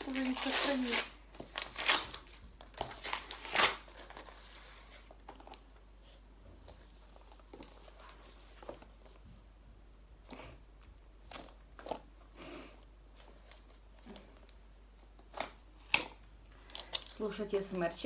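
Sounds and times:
packaging paper tearing and rustling: 0.0s - 5.6s.

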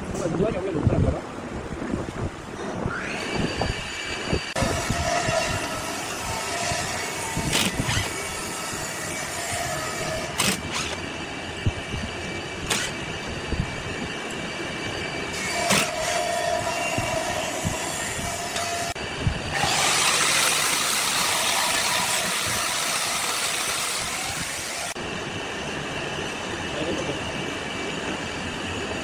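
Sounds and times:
cordless drill whining: 3.2s - 11.1s, 15.5s - 25.0s.

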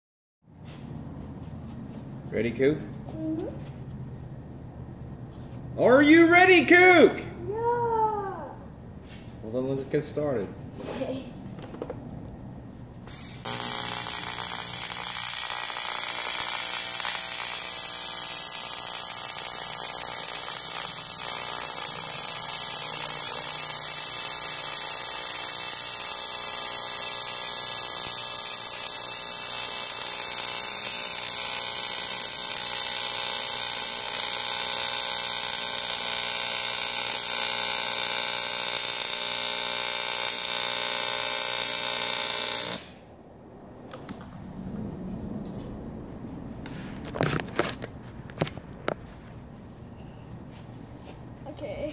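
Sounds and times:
welding arc buzzing and hissing: 13.1s - 43.0s.

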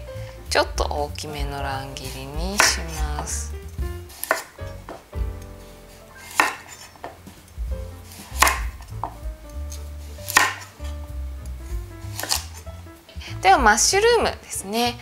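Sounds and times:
knife chopping carrot on board: 2.4s - 5.5s, 6.2s - 10.7s, 12.1s - 12.6s.

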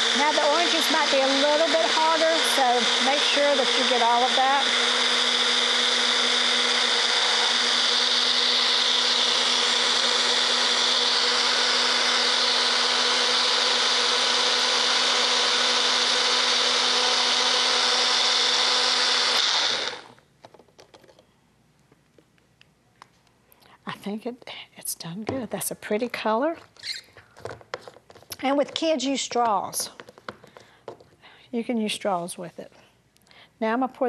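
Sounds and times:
blender motor whining: 0.0s - 20.2s.

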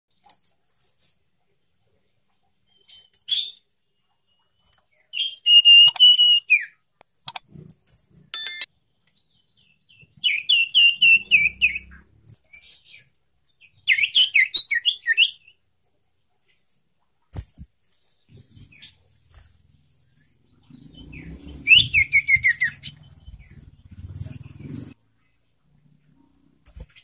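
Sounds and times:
bird whistled calls: 5.1s - 6.8s, 10.2s - 11.9s, 21.0s - 23.0s.

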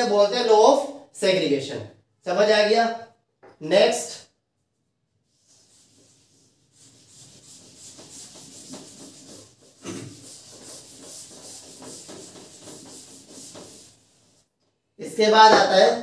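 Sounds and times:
scratchy rubbing on writing surface: 5.2s - 14.5s.

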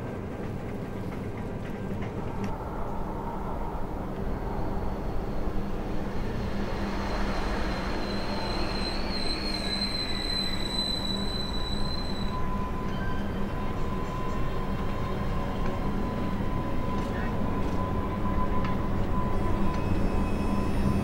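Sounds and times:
passenger train rumbling past: 0.0s - 21.0s
high wheel squeal: 6.4s - 21.0s.

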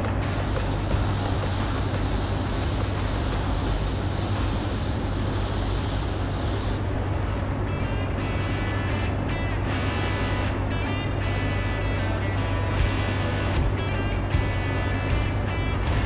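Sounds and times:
spray gun hissing: 0.0s - 6.9s
low hum: 0.0s - 16.0s.

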